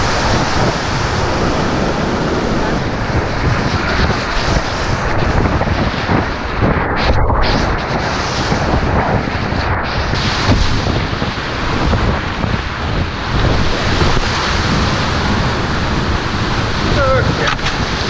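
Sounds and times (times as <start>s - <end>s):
whitewater rapids roaring: 0.0s - 6.6s, 13.4s - 18.0s
waves crashing over boat: 0.0s - 18.0s.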